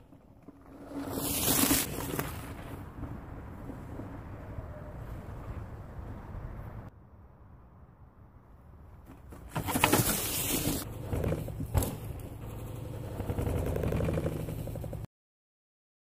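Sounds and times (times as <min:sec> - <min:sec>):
bike tyres crunching through dry leaves: 0:00.5 - 0:03.0, 0:09.5 - 0:10.9.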